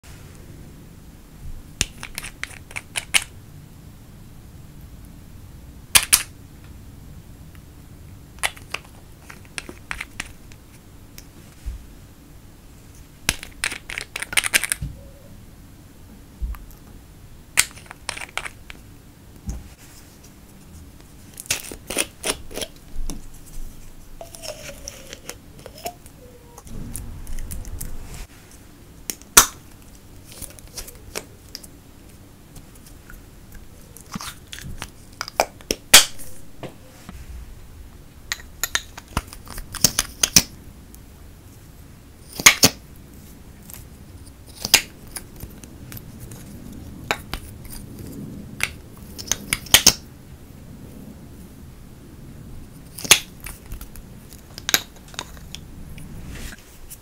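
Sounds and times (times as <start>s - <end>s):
plastic and metal caps clicking: 1.8s - 3.3s, 13.3s - 14.8s, 24.2s - 26.1s.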